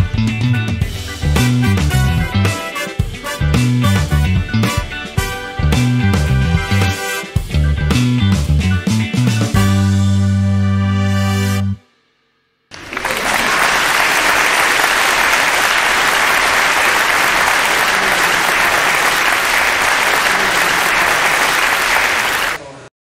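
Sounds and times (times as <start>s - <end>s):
applause: 12.7s - 22.8s.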